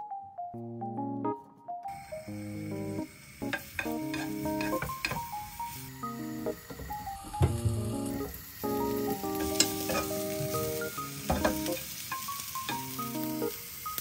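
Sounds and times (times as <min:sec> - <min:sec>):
soft background music: 0:00.0 - 0:14.0
sausage sizzling in oil: 0:01.9 - 0:14.0
spoon and pan knocks: 0:03.5 - 0:05.3, 0:09.4 - 0:12.9.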